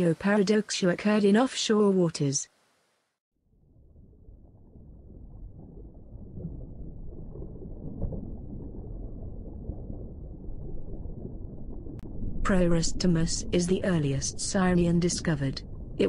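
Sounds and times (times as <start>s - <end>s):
muffled underwater water rumble: 3.4s - 16.0s.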